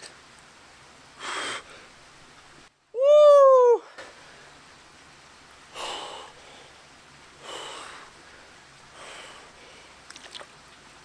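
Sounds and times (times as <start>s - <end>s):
man breathing sharply: 7.4s - 10.0s.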